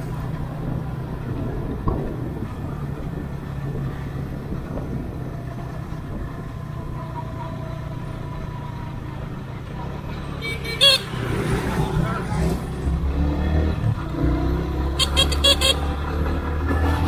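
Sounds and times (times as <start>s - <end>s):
motorcycle rumbling: 0.0s - 17.0s
vehicle horn beep: 10.4s - 11.4s, 14.9s - 16.0s.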